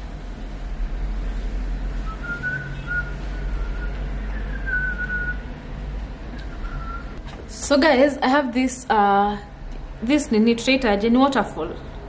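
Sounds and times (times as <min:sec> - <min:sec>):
person whistling a tune: 0:02.0 - 0:05.4, 0:06.5 - 0:07.2.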